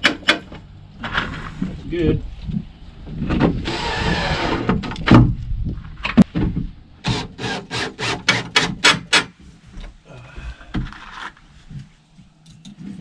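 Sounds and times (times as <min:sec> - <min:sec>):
cordless drill driving screws: 0:03.6 - 0:04.7.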